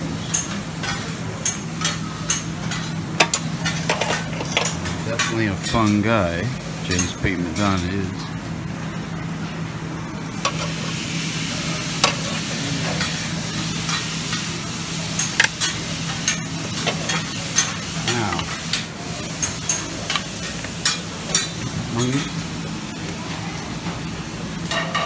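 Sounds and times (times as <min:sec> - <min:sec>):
food sizzling on grill: 0:00.0 - 0:25.0
metal tongs clinking on pans: 0:00.3 - 0:06.1, 0:06.9 - 0:07.9, 0:15.1 - 0:22.4.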